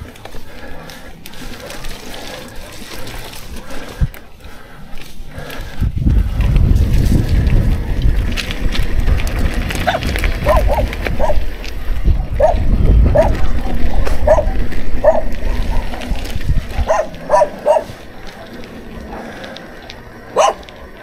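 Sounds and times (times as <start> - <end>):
mountain bike rumbling on gravel: 0.0 - 21.0
dog barking: 9.9 - 11.4, 12.4 - 16.0, 16.8 - 18.0, 20.4 - 20.7.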